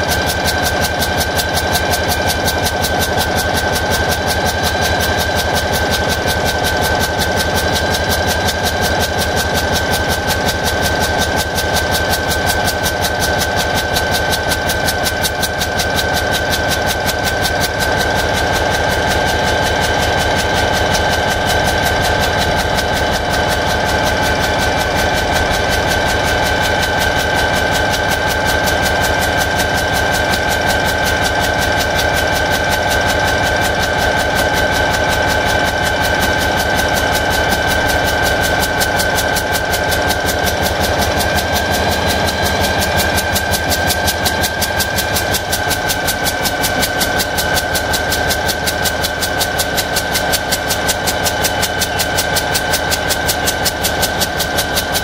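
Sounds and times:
diesel locomotive engine idling: 0.0 - 55.0
high whine: 36.3 - 46.1.

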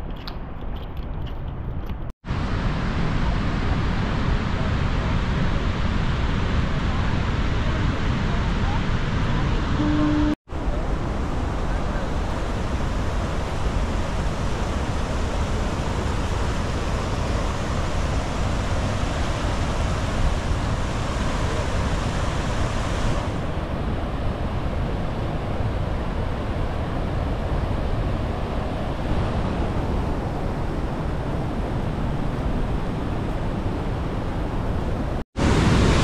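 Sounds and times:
wind rumbling on microphone: 0.0 - 36.0
waterfall roaring: 10.6 - 36.0.

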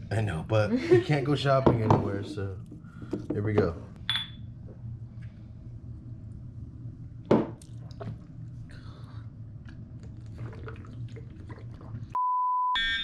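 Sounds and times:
steady low hum: 0.0 - 12.2
drinking and swallowing: 7.5 - 12.2.

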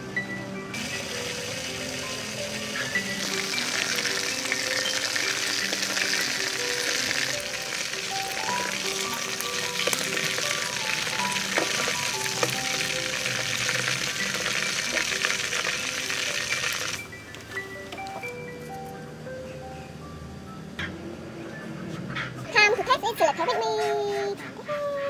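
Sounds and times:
background music: 0.0 - 22.9
chicken sizzling in oil: 0.8 - 17.1.

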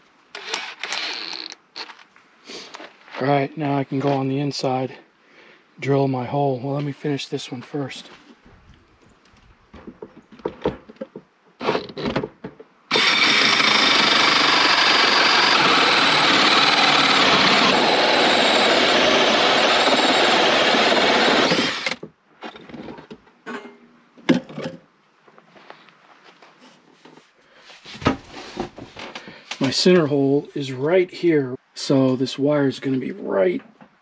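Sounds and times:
cordless drill boring wood: 0.4 - 1.6, 12.9 - 22.0.

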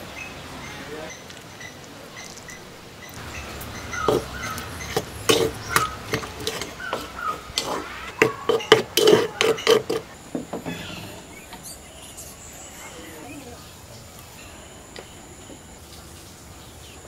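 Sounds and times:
spoon stirring in clay bowl: 2.1 - 11.2.

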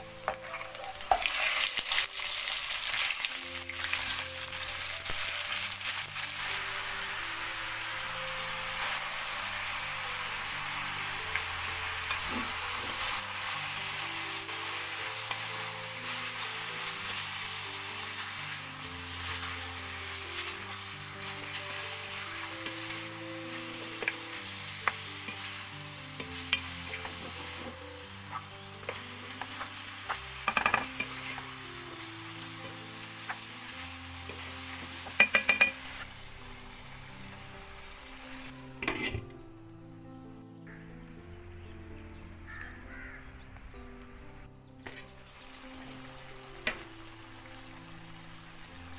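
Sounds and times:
meat sizzling in hot oil: 0.0 - 39.2, 44.6 - 48.9
soft background music: 0.0 - 48.9
spatula tapping and scraping pot: 35.1 - 35.8.

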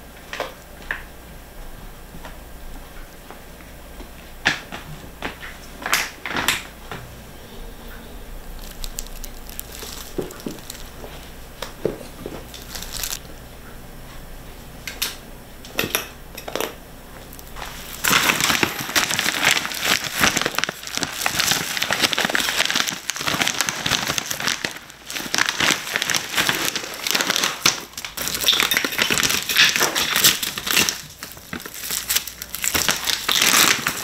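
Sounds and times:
plastic bag crinkling: 8.3 - 13.3, 17.2 - 34.0.

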